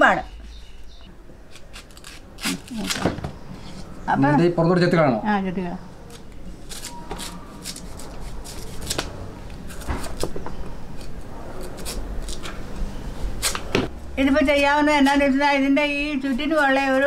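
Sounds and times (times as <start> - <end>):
knife scraping bamboo shoot: 1.5 - 3.0, 6.1 - 10.3, 10.9 - 12.5.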